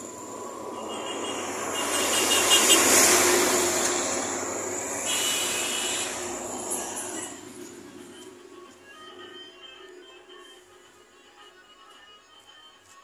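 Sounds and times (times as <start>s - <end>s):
vehicle passing: 0.0s - 8.6s.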